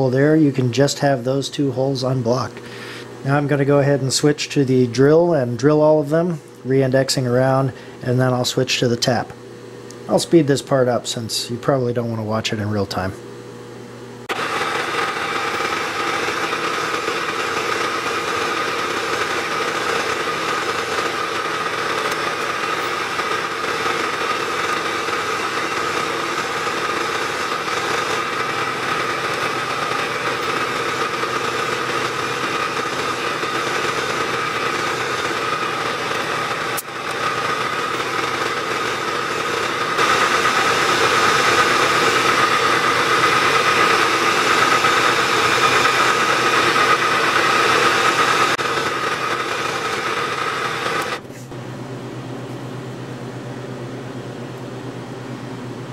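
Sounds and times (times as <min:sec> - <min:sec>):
milling machine spindle running: 0:14.2 - 0:51.2
drill boring into metal: 0:14.3 - 0:51.2.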